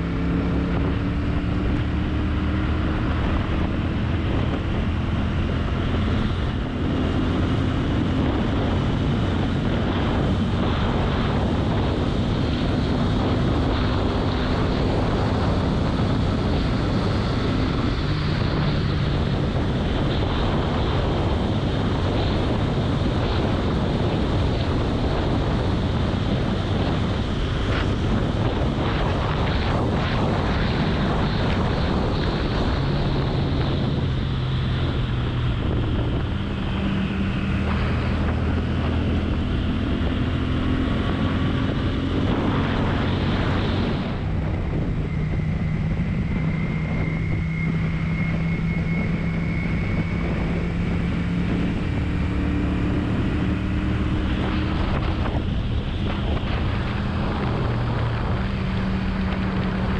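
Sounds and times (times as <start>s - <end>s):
wind noise on microphone: 0.0s - 59.9s.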